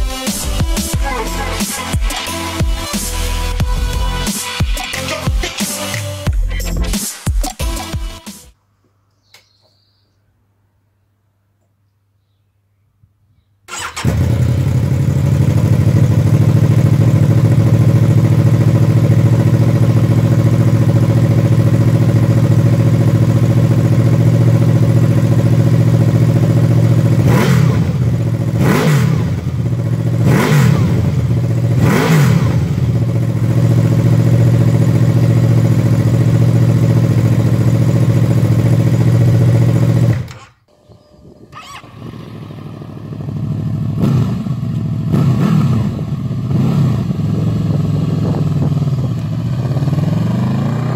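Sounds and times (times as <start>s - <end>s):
motorcycle engine idling: 13.7s - 40.3s, 41.0s - 50.9s
motorcycle engine revving: 13.7s - 50.9s.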